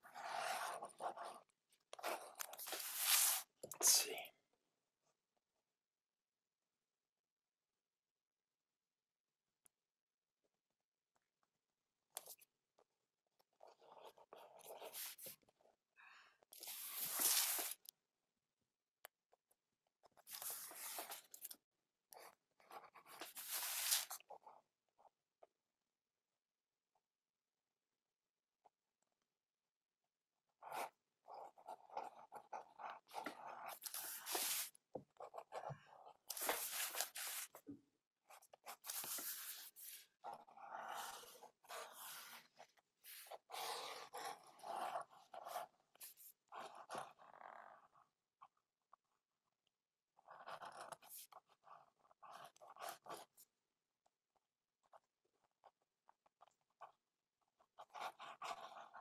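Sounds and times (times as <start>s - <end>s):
pen scratching on paper: 0.0s - 4.0s, 12.1s - 12.5s, 13.3s - 15.8s, 16.4s - 17.9s, 20.0s - 25.2s, 30.5s - 48.5s, 50.1s - 53.6s, 54.8s - 59.0s.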